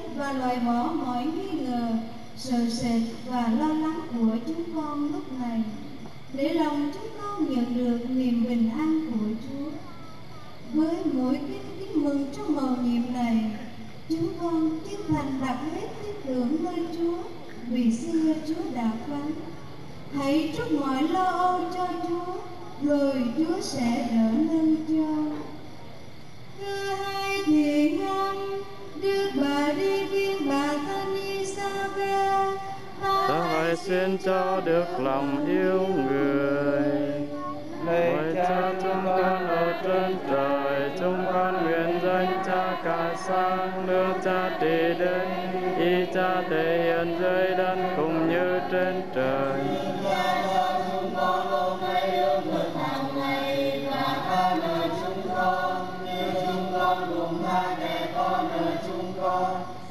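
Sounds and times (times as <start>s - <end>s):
choir singing a hymn: 23.2s - 59.9s.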